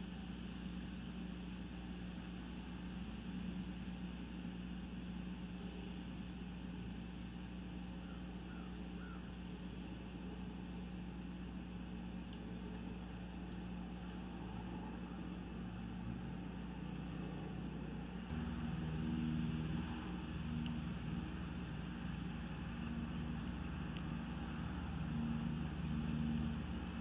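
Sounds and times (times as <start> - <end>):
constant low hum: 0.0 - 27.0
outdoor background rumble: 0.0 - 27.0.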